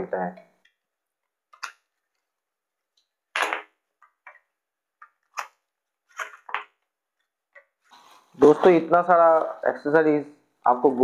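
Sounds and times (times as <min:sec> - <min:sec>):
plastic bags rustling and scraping: 0:07.9 - 0:09.4.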